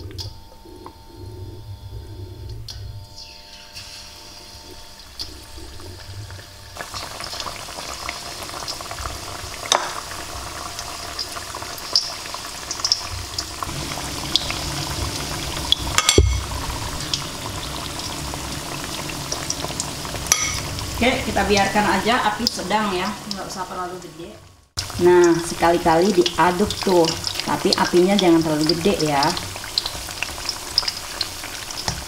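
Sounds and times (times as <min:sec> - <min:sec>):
food frying in hot oil: 0:03.2 - 0:32.0
loud knock: 0:16.1 - 0:16.5.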